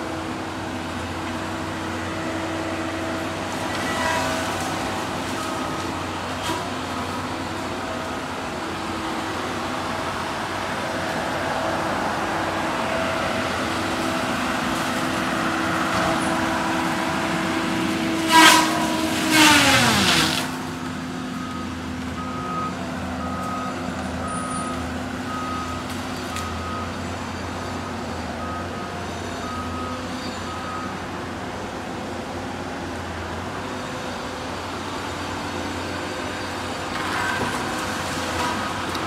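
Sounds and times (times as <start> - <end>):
forestry machine running: 0.0 - 39.0
saw cutting tree: 12.0 - 21.0.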